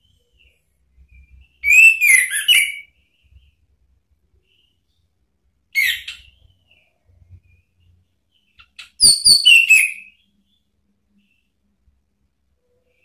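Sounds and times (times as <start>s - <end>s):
high whistled bird notes: 1.3s - 3.0s, 8.8s - 10.2s.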